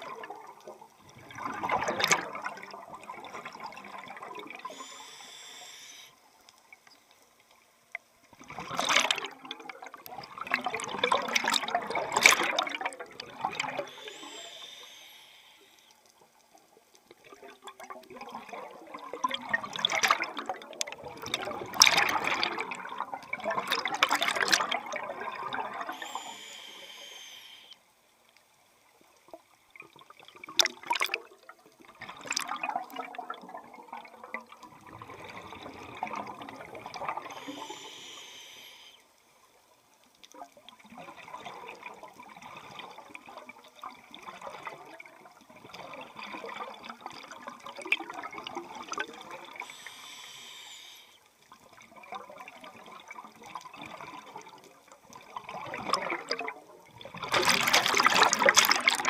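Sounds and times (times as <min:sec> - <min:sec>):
bubbling exhales underwater: 0:00.0 - 0:05.0, 0:08.4 - 0:14.7, 0:17.2 - 0:26.5, 0:55.2 - 0:59.0
hissing regulator inhale: 0:04.6 - 0:06.2, 0:13.8 - 0:16.0, 0:25.9 - 0:27.8, 0:37.2 - 0:39.0, 0:49.6 - 0:51.2.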